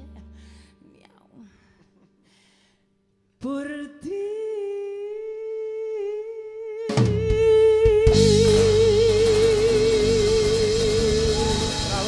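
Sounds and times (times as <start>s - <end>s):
woman singing a long note: 3.4s - 12.0s
band playing drums and guitar: 6.9s - 12.0s.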